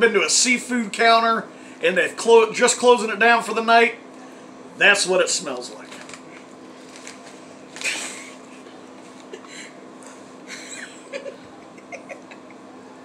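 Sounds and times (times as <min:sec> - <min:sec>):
steady low hum: 0:00.0 - 0:13.0
snack bag crinkling: 0:05.8 - 0:08.2.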